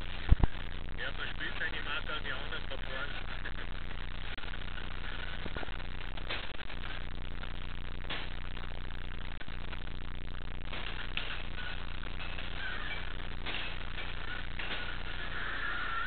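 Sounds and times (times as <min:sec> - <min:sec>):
air hockey blower humming: 0:10.7 - 0:16.0.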